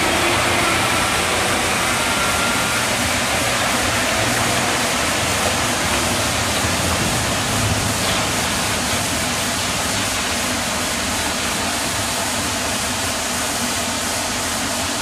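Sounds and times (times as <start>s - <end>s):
tractor engine running: 0.0s - 11.6s
steady rushing noise: 0.0s - 13.2s.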